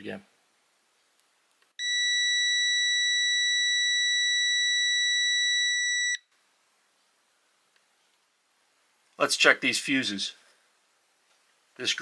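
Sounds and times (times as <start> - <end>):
multimeter continuity beep: 1.8 - 6.2.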